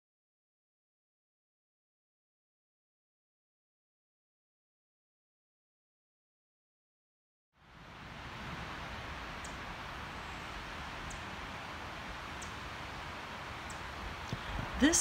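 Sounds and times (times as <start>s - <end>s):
forest ambience hiss: 7.6s - 15.0s.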